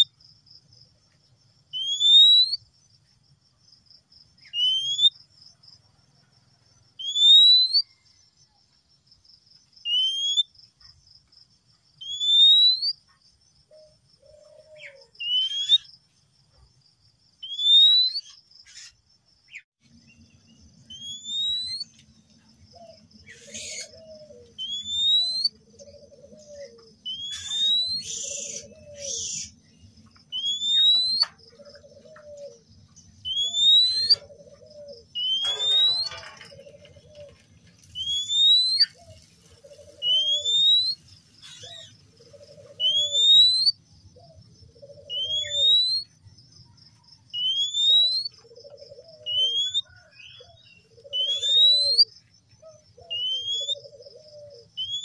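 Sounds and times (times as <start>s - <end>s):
bird rising whistle: 4.5s - 5.1s, 7.0s - 8.0s, 9.9s - 10.5s, 12.0s - 13.0s, 20.9s - 21.9s, 23.4s - 25.6s, 26.6s - 29.5s, 30.3s - 31.3s, 33.2s - 34.2s, 35.2s - 36.2s, 38.0s - 39.0s, 40.0s - 41.0s, 42.8s - 43.8s, 45.0s - 46.1s, 47.4s - 48.3s, 51.1s - 52.1s, 53.1s - 53.9s, 54.8s - 55.0s.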